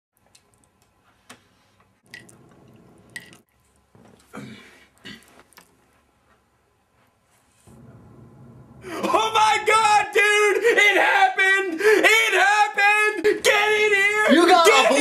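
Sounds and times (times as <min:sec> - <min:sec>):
eating and chewing: 0:00.2 - 0:01.2, 0:02.0 - 0:06.0.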